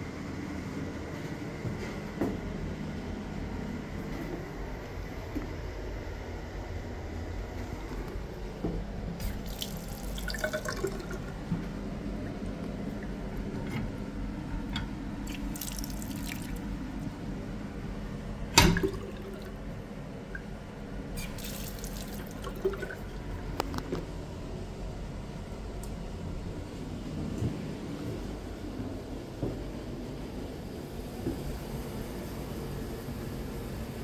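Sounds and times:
water running and dripping: 0:09.2 - 0:11.6, 0:14.7 - 0:17.2, 0:18.6 - 0:19.6, 0:21.2 - 0:23.9.

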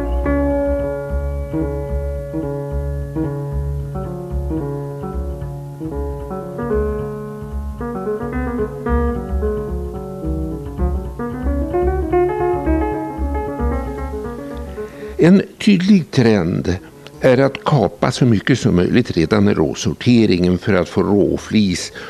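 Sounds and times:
low pulsing beat: 0:00.0 - 0:14.9
keyboard melody: 0:00.0 - 0:17.7.

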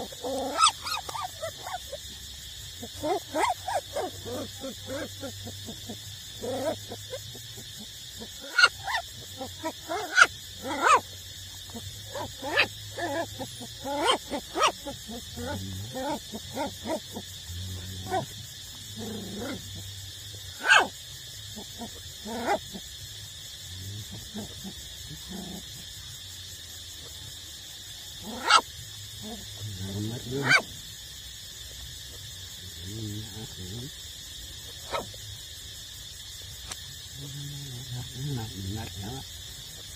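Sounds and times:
puppy yelps: 0:00.0 - 0:02.0, 0:02.9 - 0:05.3, 0:08.4 - 0:11.1, 0:11.7 - 0:17.2, 0:20.5 - 0:20.9, 0:28.2 - 0:28.6, 0:30.3 - 0:30.6, 0:34.8 - 0:35.1
puppies yipping and whining: 0:00.2 - 0:01.9.

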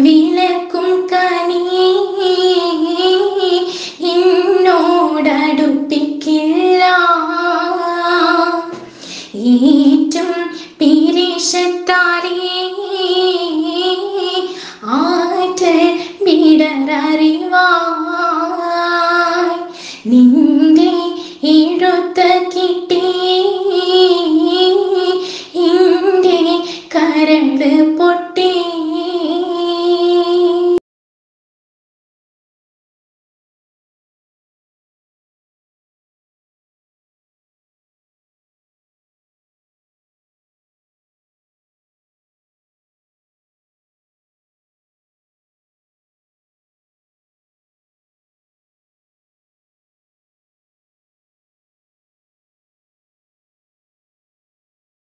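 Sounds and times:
woman singing: 0:00.0 - 0:30.8.

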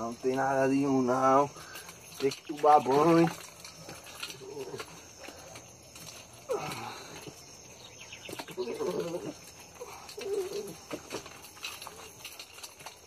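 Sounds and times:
young dog whining: 0:08.5 - 0:10.8.

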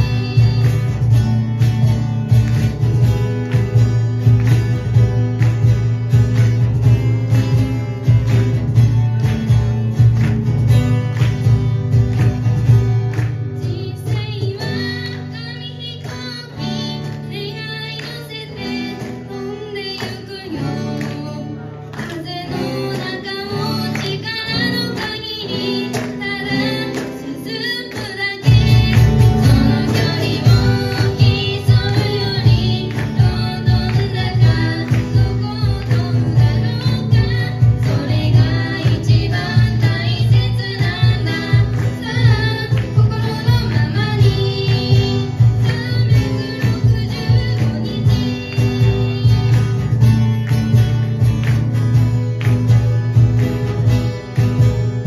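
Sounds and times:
young woman singing: 0:00.0 - 0:01.2, 0:13.4 - 0:50.0
acoustic guitars: 0:00.0 - 0:55.0
cajon: 0:00.0 - 0:55.0.

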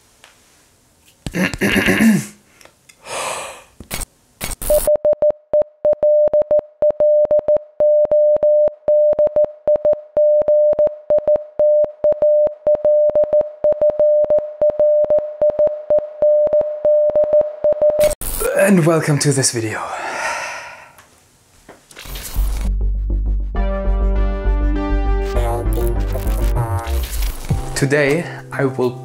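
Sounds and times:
morse code beeps: 0:04.6 - 0:18.2
glitch effects: 0:25.3 - 0:27.6.

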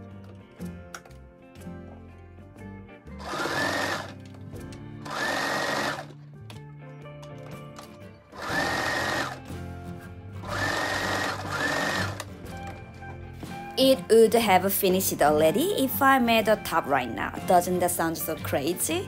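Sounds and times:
sewing machine stitching: 0:03.2 - 0:04.2, 0:05.0 - 0:06.1, 0:08.4 - 0:09.4, 0:10.4 - 0:12.3.

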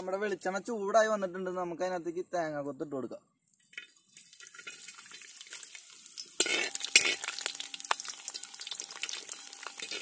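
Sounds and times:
food frying in oil: 0:03.7 - 0:10.0
metal skimmer stirring in pan: 0:03.8 - 0:10.0.

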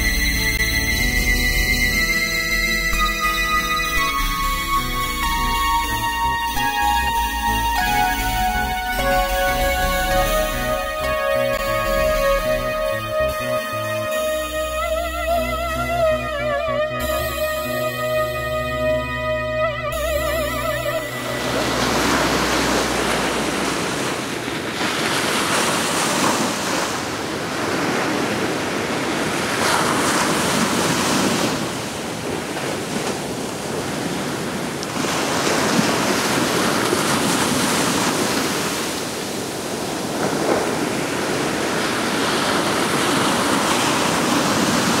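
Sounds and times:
music: 0:00.0 - 0:23.6.

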